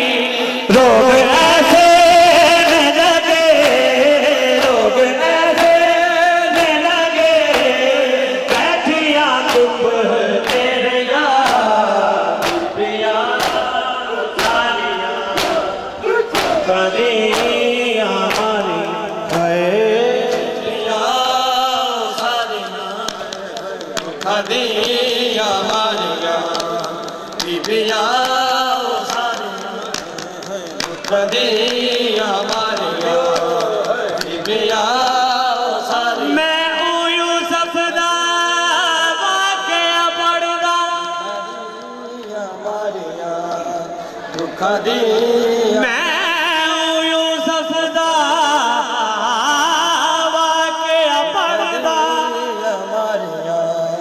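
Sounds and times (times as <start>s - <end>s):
men chanting in chorus: 0.0s - 54.0s
hands slapping bare chests: 10.4s - 10.7s, 12.4s - 12.8s, 13.4s - 13.7s, 14.4s - 14.7s, 15.4s - 16.7s, 26.4s - 28.4s.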